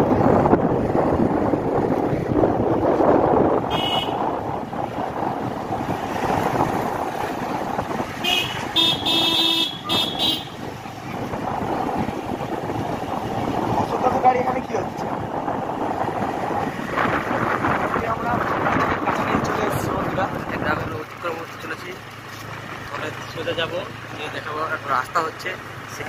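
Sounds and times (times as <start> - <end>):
wind and road noise: 0.0 - 26.0
scooter horn beeping: 3.7 - 4.3, 8.2 - 10.6.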